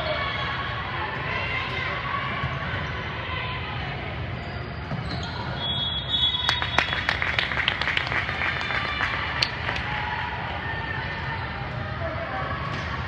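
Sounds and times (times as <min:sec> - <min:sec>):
echoing murmur of spectators: 0:00.0 - 0:13.0
shoe squeak: 0:04.4 - 0:06.7.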